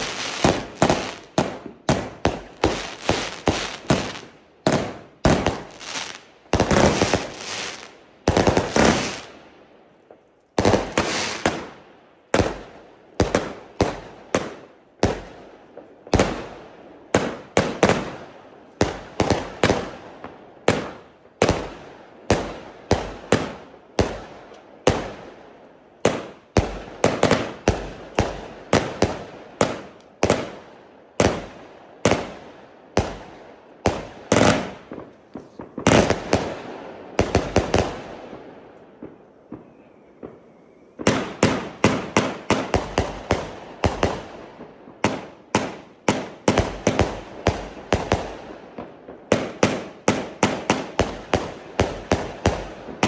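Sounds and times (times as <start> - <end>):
fireworks aerial bursts: 0.0 - 9.4, 10.6 - 15.3, 33.8 - 53.0.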